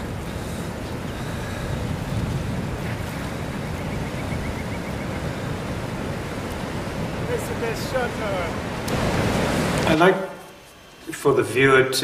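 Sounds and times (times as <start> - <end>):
wind on microphone: 0.0 - 10.0
surf breaking on beach: 5.6 - 10.4.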